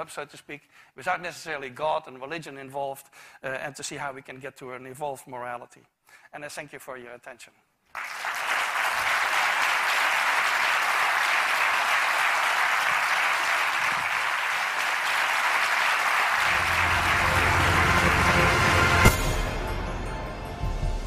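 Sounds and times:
audience applauding: 7.9 - 19.5
low music: 16.4 - 21.0.

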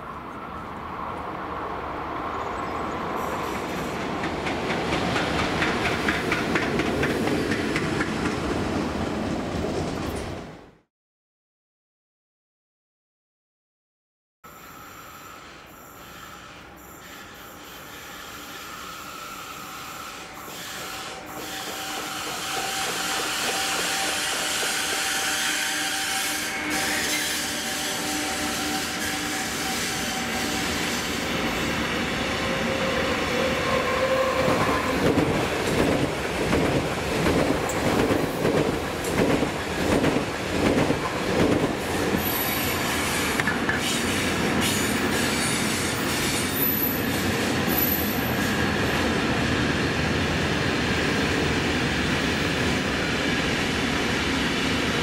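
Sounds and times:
train wheels clickety-clack: 3.2 - 10.5, 20.5 - 25.6, 34.3 - 49.1.

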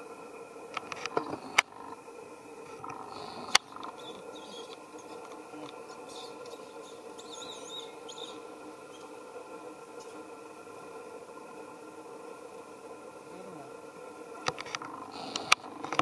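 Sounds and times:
sharp clicks: 0.8 - 2.0, 2.7 - 5.8, 14.4 - 16.0
high squeaks and chirps: 3.1 - 5.3, 6.0 - 9.1.

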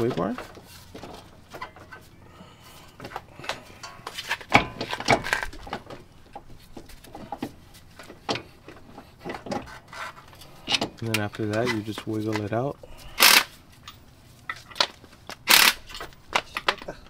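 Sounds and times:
metal clunks and clicks: 3.8 - 6.1.

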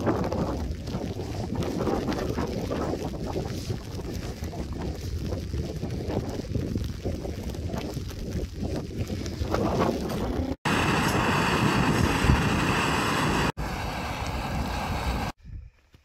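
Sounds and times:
wind buffeting microphone: 0.0 - 16.0
gas stove hissing: 10.7 - 15.4.

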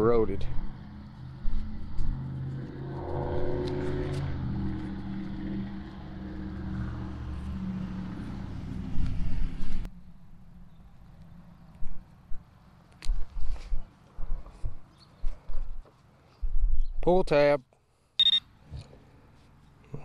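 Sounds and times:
vehicle engine running: 0.0 - 9.9.

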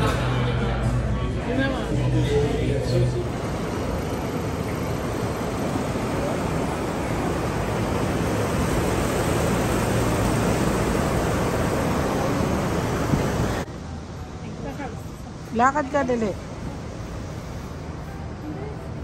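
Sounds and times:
rushing air: 3.3 - 14.2, 16.4 - 19.0.

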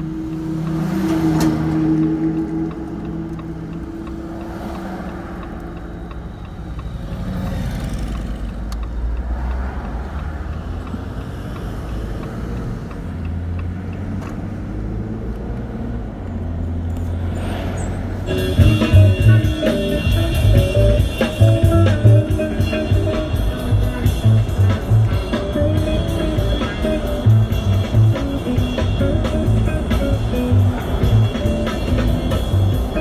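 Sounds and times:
car engine and road rumble: 0.0 - 33.0
guitar music: 18.3 - 33.0.

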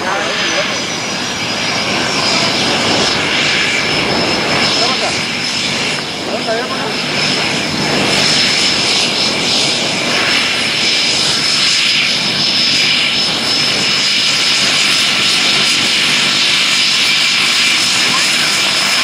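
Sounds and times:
propeller noise: 0.0 - 19.0
turbine engine whine: 0.0 - 19.0.

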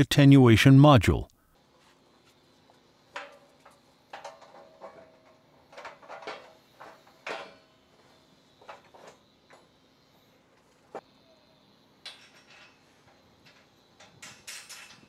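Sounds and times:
metallic clinks and knocks: 12.0 - 15.0.

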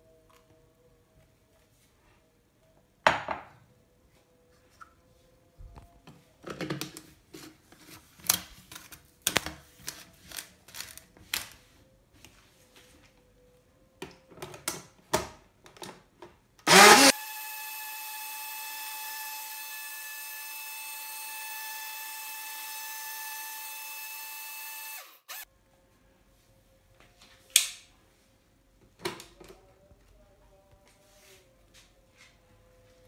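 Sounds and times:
blender motor whine: 16.7 - 25.4.

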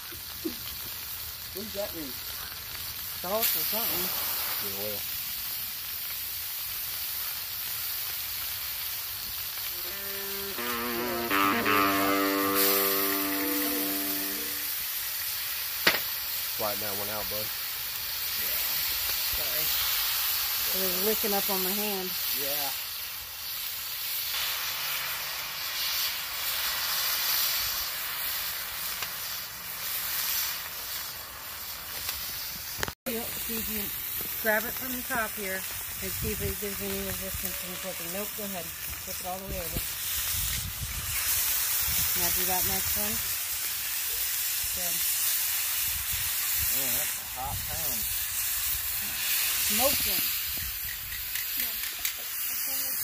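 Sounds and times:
steaks sizzling in oil: 0.0 - 53.0
music with long held notes: 9.8 - 14.7.

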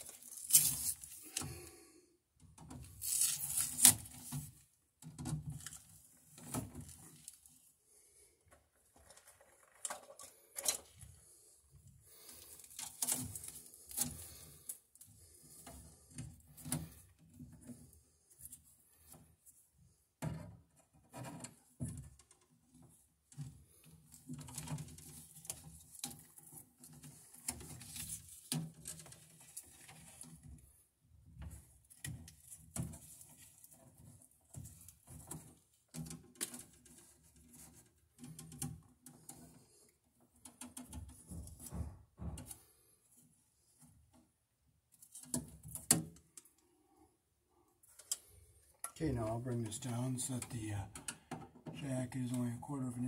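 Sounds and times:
pliers and cable clicks and scrapes: 0.0 - 1.5.

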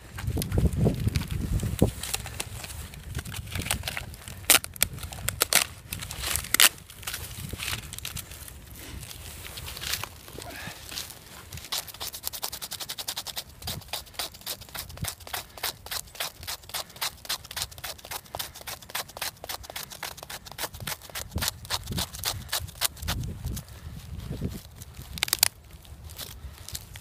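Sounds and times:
hand saw cutting branch: 11.5 - 23.2.

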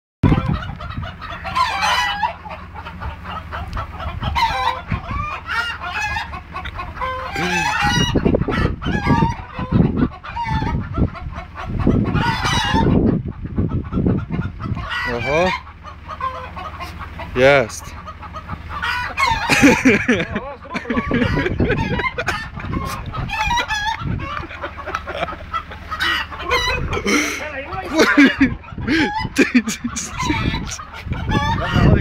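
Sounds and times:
chickens clucking: 0.2 - 32.0
low rumbling noise: 15.6 - 32.0.

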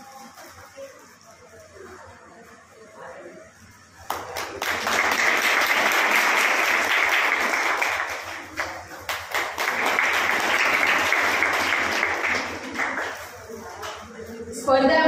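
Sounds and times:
audience applauding: 4.1 - 14.1.

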